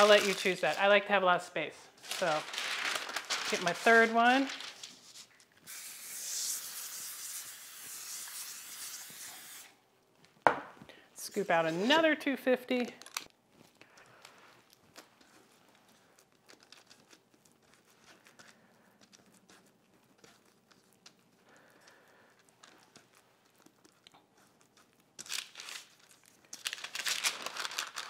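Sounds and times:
parchment paper crinkling: 0.0s - 1.1s, 2.0s - 6.5s, 13.0s - 28.0s
soft handling of wet dough: 13.3s - 26.8s.

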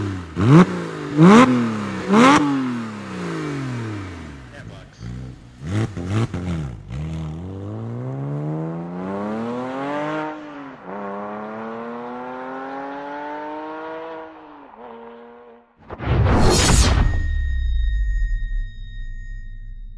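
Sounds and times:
sports car engine accelerating: 0.0s - 15.7s.

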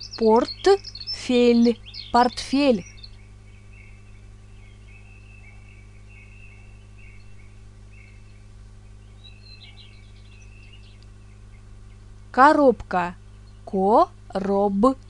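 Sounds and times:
faint high chirps: 0.0s - 11.7s
low electrical hum: 0.0s - 15.0s.

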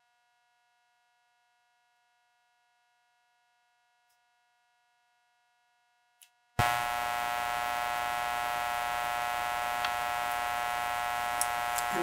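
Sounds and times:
electrical hum: 6.6s - 12.0s.

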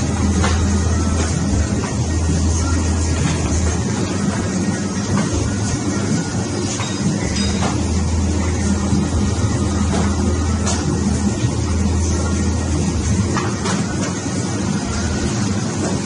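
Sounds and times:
laminating machine humming: 0.0s - 16.0s.

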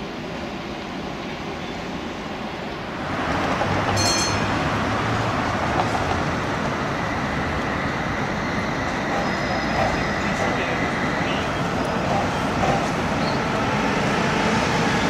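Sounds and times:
tram wheels rumbling on rails: 0.0s - 15.0s
brief high ring: 4.0s - 4.6s.

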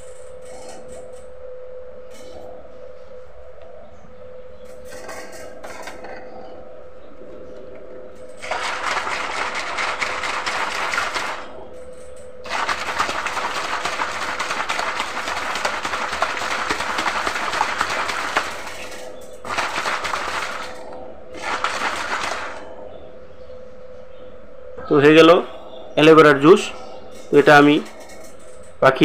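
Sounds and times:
faint steady hum: 0.0s - 29.0s
plastic bottle being shaken: 8.4s - 11.5s, 12.5s - 20.8s, 21.4s - 22.6s.

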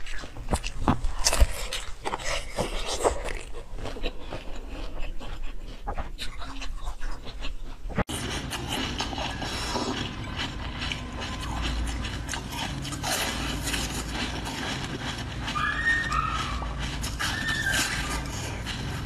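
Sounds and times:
wet mouth squelches and clicks: 0.0s - 7.7s
chewing firm jelly: 0.0s - 19.0s.

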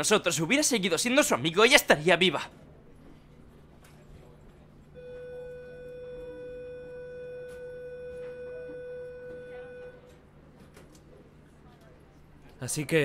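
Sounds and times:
steady electronic tone: 5.0s - 10.0s.

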